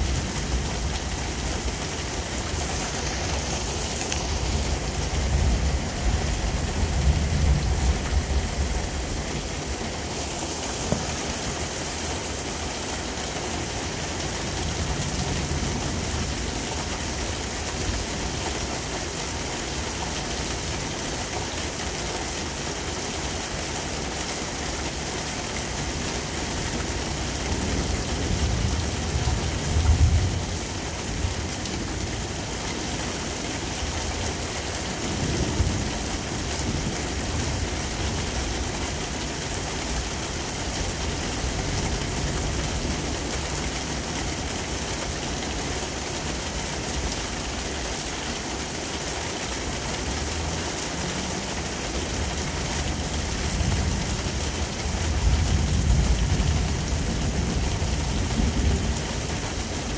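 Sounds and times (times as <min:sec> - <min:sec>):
low thunder rumbles: 0:00.0 - 0:12.5
heavy rain falling: 0:00.0 - 0:59.9.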